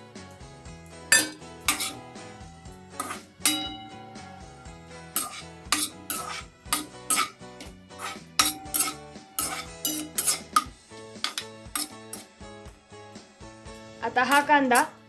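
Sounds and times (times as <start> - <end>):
metal ladle scraping metal pan: 1.1 - 12.3.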